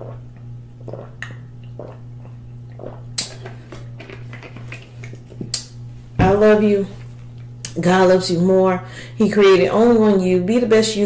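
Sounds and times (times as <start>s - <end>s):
swallowing gulps: 0.0s - 5.6s
low electrical hum: 0.0s - 11.0s.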